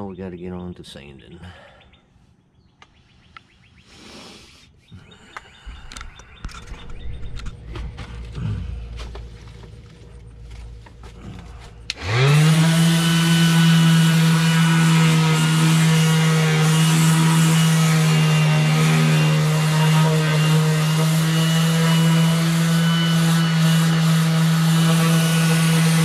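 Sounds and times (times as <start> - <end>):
orbital sander running: 6.4 - 26.0.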